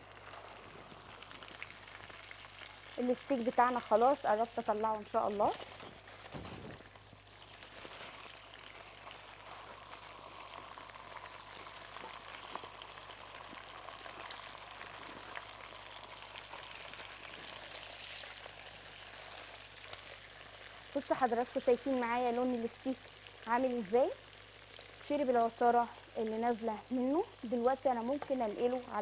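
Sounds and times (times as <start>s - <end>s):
steak sizzling in frying pan: 7.0s - 25.2s.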